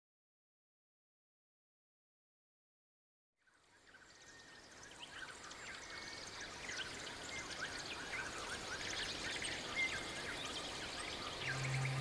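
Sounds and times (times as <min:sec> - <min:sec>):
small birds chirping: 0:03.9 - 0:12.0.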